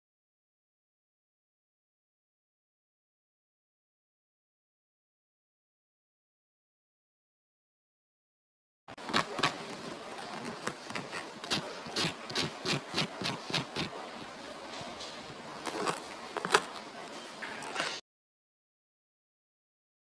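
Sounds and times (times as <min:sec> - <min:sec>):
knife cutting crunchy crust: 0:09.0 - 0:14.0, 0:15.6 - 0:16.9.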